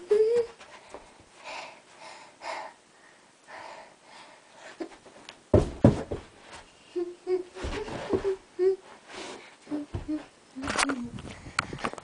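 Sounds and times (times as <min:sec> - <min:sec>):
girl breathing: 0:00.4 - 0:05.0, 0:06.7 - 0:10.3, 0:11.2 - 0:12.0.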